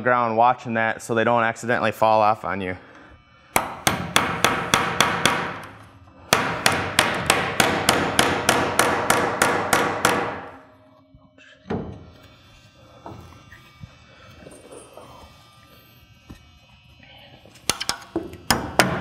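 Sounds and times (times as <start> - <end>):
hammer driving nails into wood: 3.6 - 5.7, 6.3 - 10.5.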